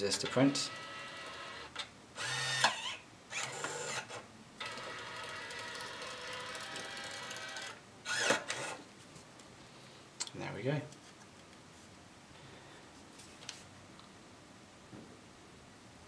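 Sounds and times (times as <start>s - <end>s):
label printer motor whirring: 0.4s - 8.8s.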